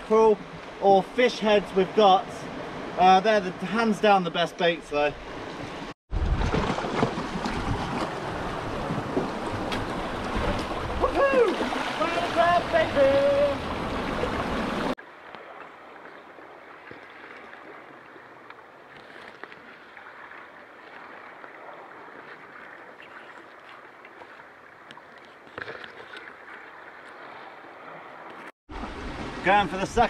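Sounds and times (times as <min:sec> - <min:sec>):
sea noise: 0:00.0 - 0:30.0
wind: 0:00.0 - 0:30.0.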